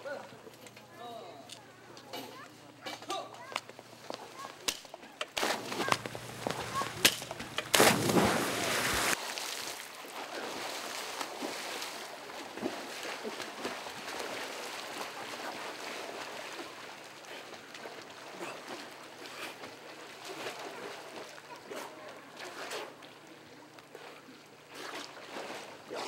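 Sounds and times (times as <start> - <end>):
big splash into pool: 5.4 - 9.9
swimming splashes: 5.4 - 26.0.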